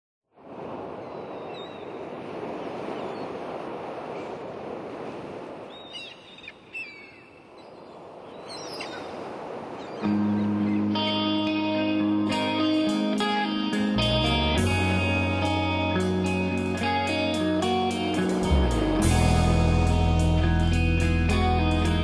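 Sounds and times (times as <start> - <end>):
guitar music: 10.0 - 22.0
steady rushing noise: 14.6 - 22.0.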